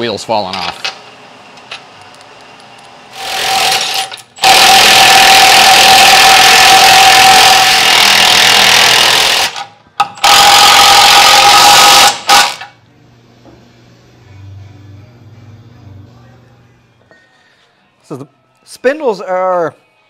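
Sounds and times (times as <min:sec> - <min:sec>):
impact wrench hammering: 0:03.2 - 0:12.7.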